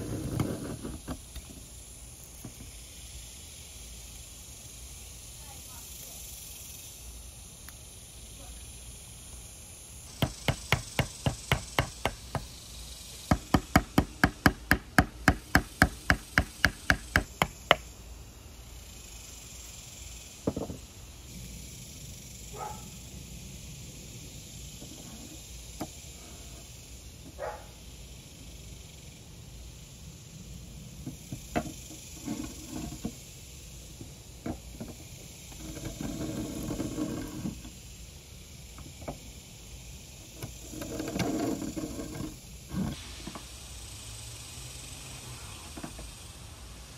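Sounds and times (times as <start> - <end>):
scraping rustle: 0.0 - 1.6, 31.7 - 33.3, 34.4 - 37.8, 40.4 - 43.6.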